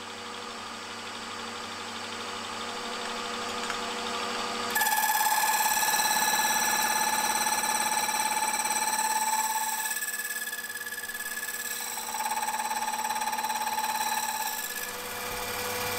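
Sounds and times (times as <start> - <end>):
slitting saw humming: 4.6 - 15.9
saw ringing while cutting metal: 4.7 - 15.9.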